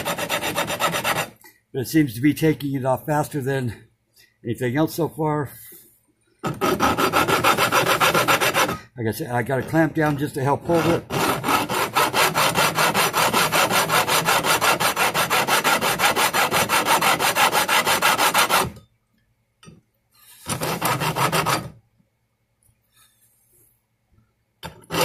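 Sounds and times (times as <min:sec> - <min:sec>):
file rasping on metal: 0:00.0 - 0:01.4, 0:06.4 - 0:08.9, 0:10.6 - 0:18.8, 0:20.3 - 0:21.8, 0:24.6 - 0:25.0.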